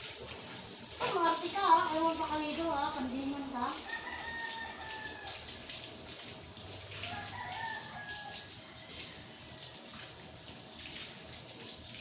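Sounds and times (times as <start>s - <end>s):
running water hiss: 0.0s - 12.0s
rooster crowing: 3.8s - 5.6s, 7.0s - 10.0s.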